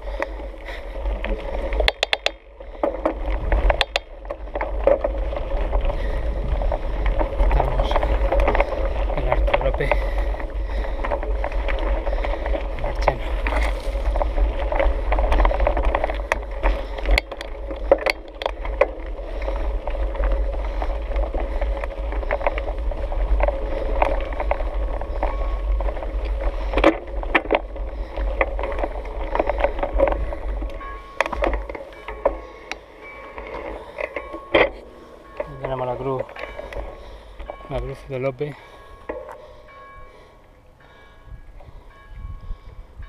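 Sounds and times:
bike knocks and rattles: 0:00.0 - 0:32.5
bike tyres crunching on gravel: 0:00.0 - 0:40.3
steady low rumble: 0:00.0 - 0:43.0.

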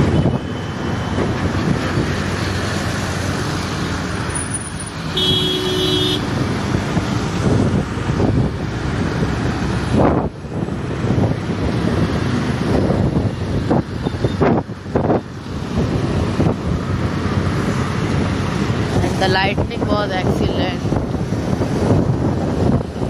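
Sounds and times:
road and traffic noise: 0:00.0 - 0:23.0
vehicle horn: 0:05.1 - 0:06.3.

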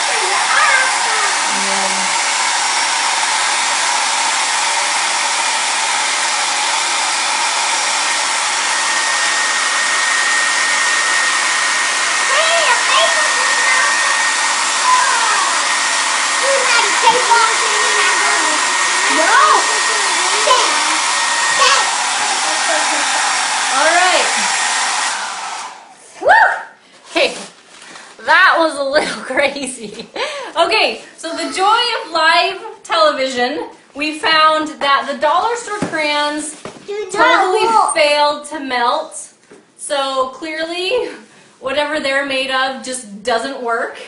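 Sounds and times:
hair dryer blowing: 0:00.0 - 0:26.3, 0:28.2 - 0:33.1, 0:34.0 - 0:36.5, 0:37.1 - 0:38.4.

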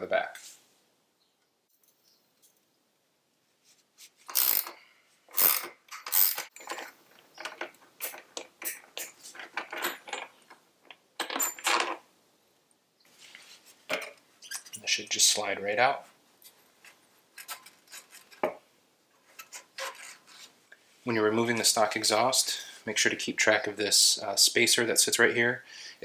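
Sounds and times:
wrenches clicking on bolt: 0:04.3 - 0:10.4.

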